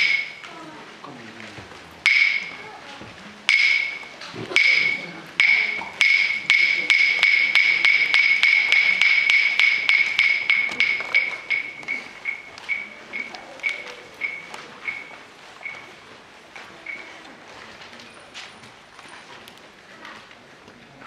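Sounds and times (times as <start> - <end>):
wooden sticks clacking: 0.0 - 0.6, 1.4 - 2.7, 3.4 - 15.8.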